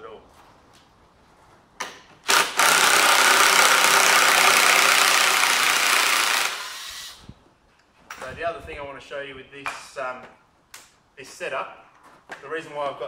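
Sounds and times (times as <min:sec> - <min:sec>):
power drill driving screw: 0:02.2 - 0:07.2.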